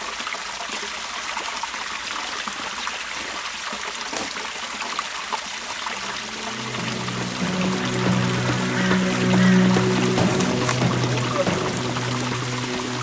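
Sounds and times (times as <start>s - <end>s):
stream rushing: 0.0s - 13.0s
background music: 6.1s - 13.0s
leaves and twigs crackling underfoot: 6.6s - 13.0s.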